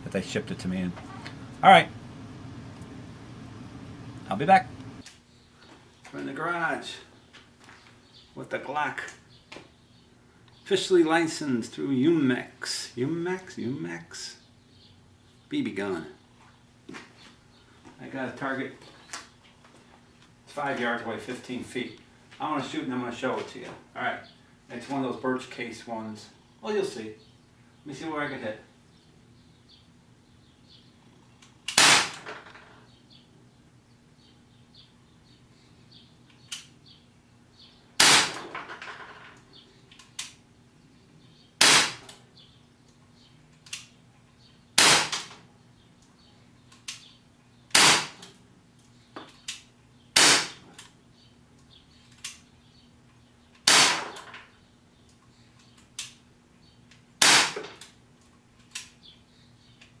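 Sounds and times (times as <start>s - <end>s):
air pistol shots: 31.7s - 32.3s, 38.0s - 38.5s, 41.6s - 42.2s, 44.8s - 45.4s, 47.7s - 48.3s, 50.2s - 50.6s, 53.6s - 54.2s, 57.2s - 57.8s.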